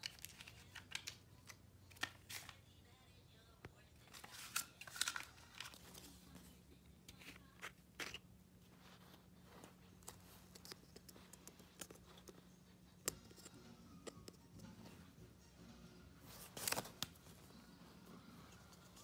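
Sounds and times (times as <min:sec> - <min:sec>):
low steady hum: 0:00.0 - 0:19.0
packaging rustling: 0:04.1 - 0:06.2, 0:16.4 - 0:17.4.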